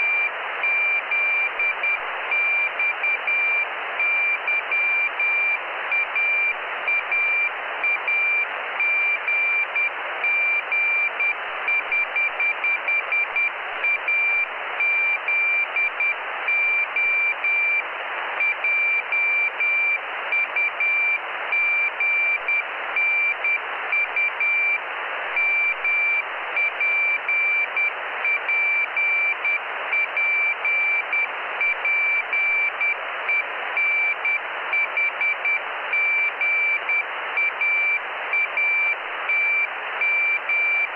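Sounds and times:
morse code beeps: 25.4s - 40.9s.

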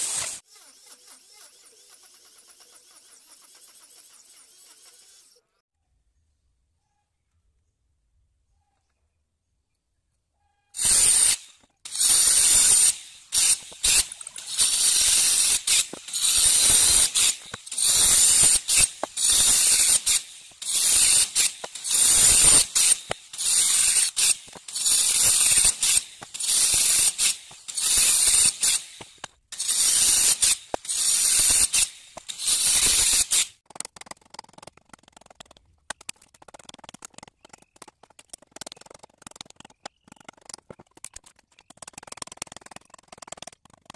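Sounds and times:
circular saw cutting wood: 0.0s - 5.5s, 10.8s - 33.6s.

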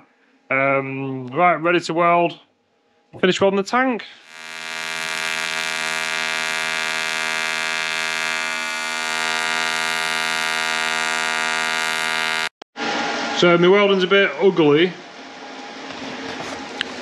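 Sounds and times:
welding arc buzzing: 4.2s - 12.6s.

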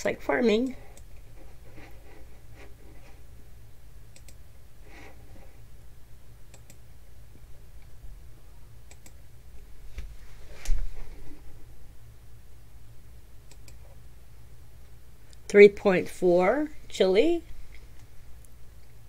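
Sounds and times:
steady low hum: 0.0s - 19.0s
computer mouse clicking: 0.9s - 1.2s, 4.1s - 4.4s, 6.5s - 6.8s, 8.9s - 9.2s, 13.4s - 14.0s.

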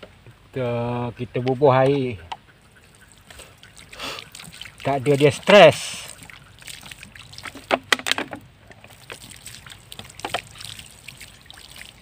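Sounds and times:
water splashing onto soil: 2.8s - 12.0s.

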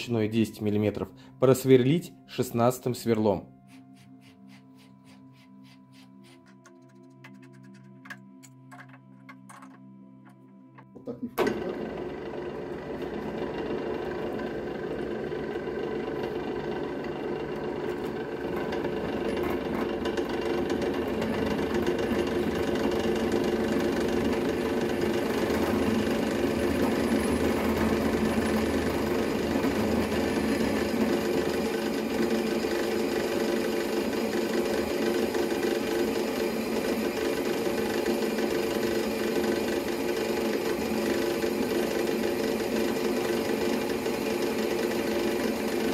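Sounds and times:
drill press boring metal: 13.0s - 45.9s.

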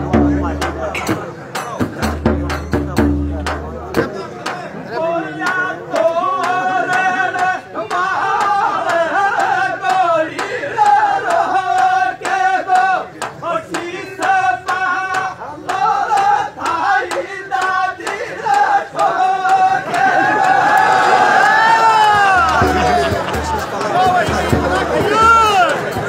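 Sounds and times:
frame drum beating: 0.0s - 4.8s, 21.9s - 26.0s
men chanting folk song: 0.0s - 26.0s.

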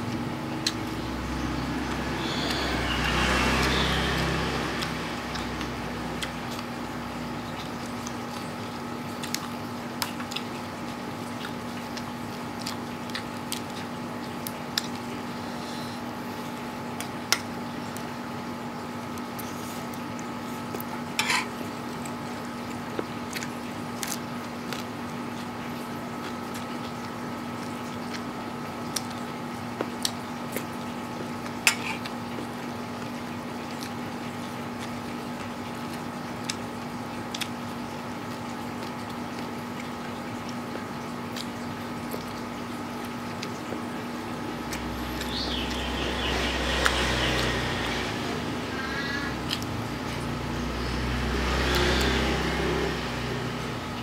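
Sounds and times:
steady background hum: 0.0s - 54.0s
wet chewing mouth clicks: 3.6s - 6.7s, 37.3s - 37.6s, 49.4s - 50.4s.

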